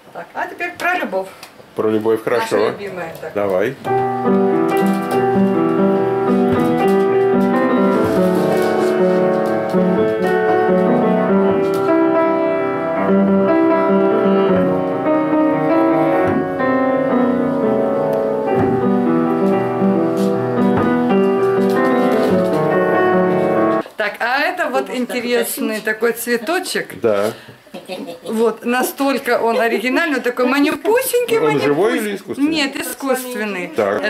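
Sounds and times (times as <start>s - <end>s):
upright piano playing: 2.2s - 23.9s, 28.9s - 34.0s.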